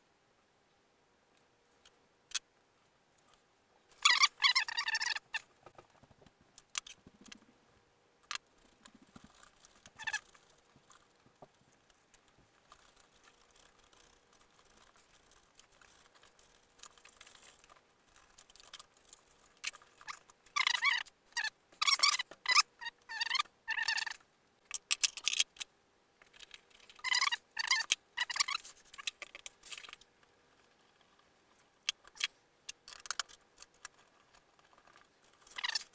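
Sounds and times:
faint steady hum: 0.0 - 35.9
small parts clicking and tapping: 4.0 - 7.5, 8.2 - 35.9.

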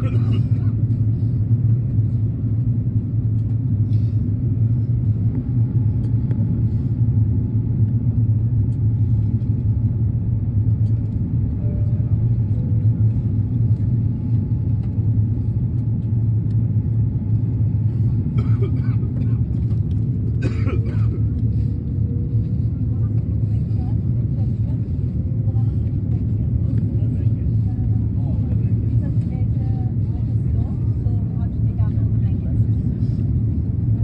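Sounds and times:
airliner engines and airflow rumble: 0.0 - 34.0.

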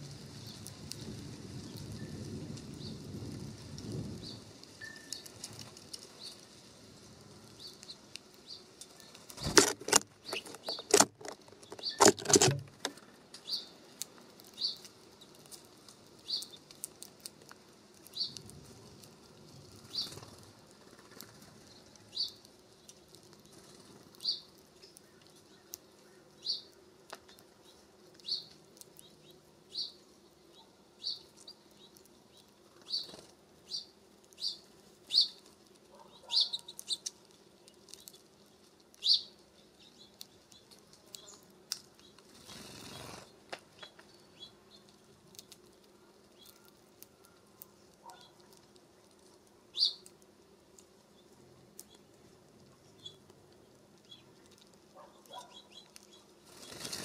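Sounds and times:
small songbirds chirping: 0.0 - 9.5, 10.1 - 12.1, 12.9 - 57.0
bird wing flutters and knocks: 9.1 - 13.5, 56.5 - 57.0.

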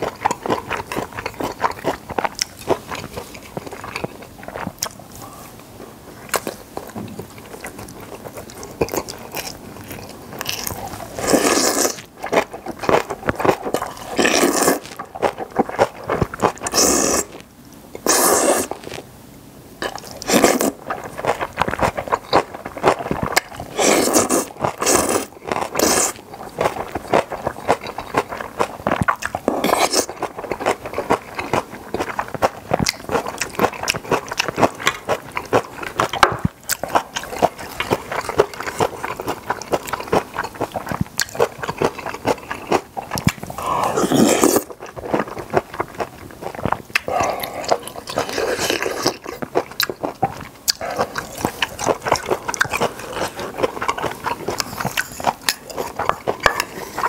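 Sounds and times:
wet chewing and mouth clicks: 0.0 - 5.0, 6.2 - 19.0, 19.8 - 57.0
louder eating bursts: 10.4 - 17.4, 18.0 - 19.0, 19.8 - 36.1, 36.7 - 57.0.

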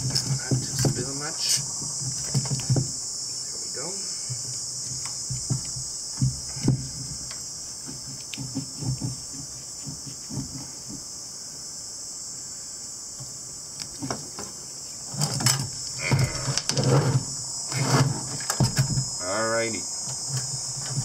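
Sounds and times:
hose knocks and scrapes: 0.0 - 3.0, 14.0 - 19.1.

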